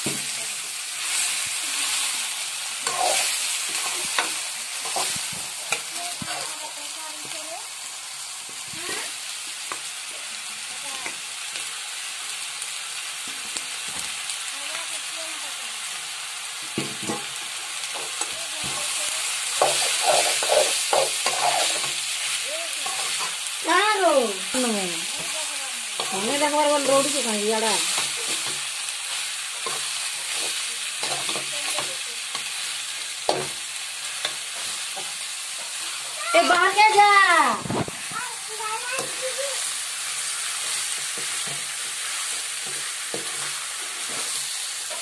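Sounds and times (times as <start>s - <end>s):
chicken sizzling in a pan: 0.0s - 45.0s
spoon scraping a pan: 2.8s - 6.5s, 18.0s - 23.5s, 25.1s - 37.1s, 39.0s - 45.0s.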